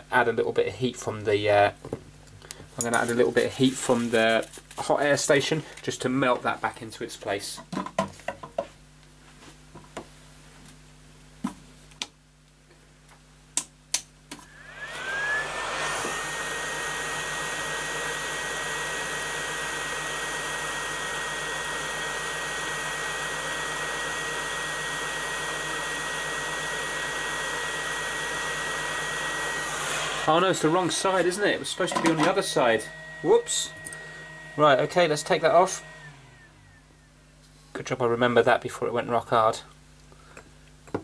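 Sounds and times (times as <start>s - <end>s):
fan whine: 14.3s - 40.2s.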